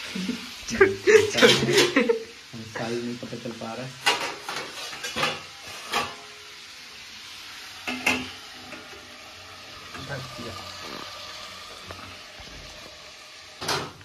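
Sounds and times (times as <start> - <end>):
potatoes sizzling in oil: 0.0 - 14.0
metal lid clanking on pan: 1.4 - 2.0, 4.0 - 6.3, 7.8 - 9.0.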